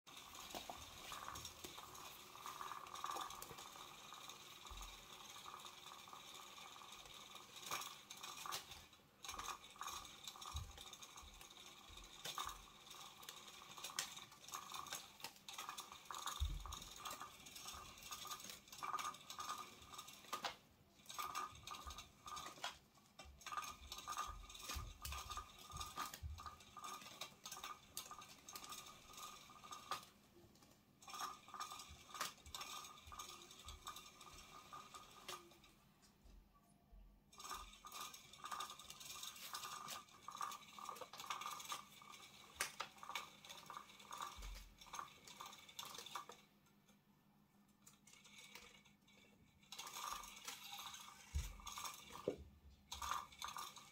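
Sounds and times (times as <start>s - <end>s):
toy motor whine: 0.1s - 30.1s, 31.0s - 35.7s, 37.3s - 46.5s, 47.9s - 53.9s
gears clicking: 0.1s - 35.8s, 37.3s - 47.0s, 47.8s - 53.9s.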